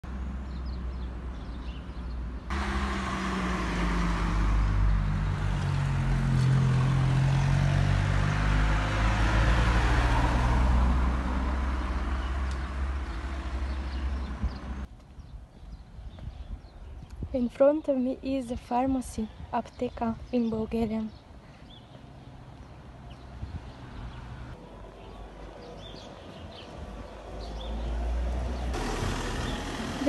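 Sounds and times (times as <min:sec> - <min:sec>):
car driving past: 0:02.5 - 0:14.9, 0:27.2 - 0:30.0.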